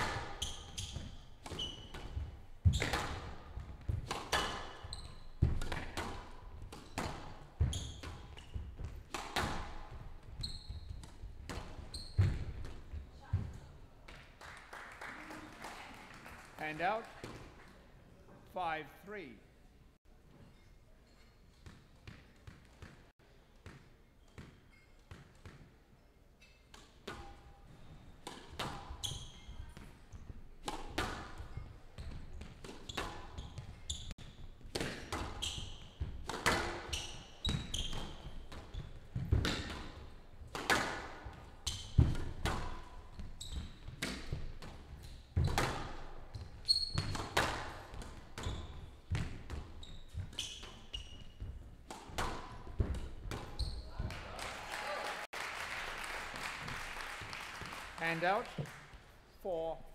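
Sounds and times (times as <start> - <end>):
squash ball hitting racquets and walls: 0.0 - 14.3, 21.5 - 54.3.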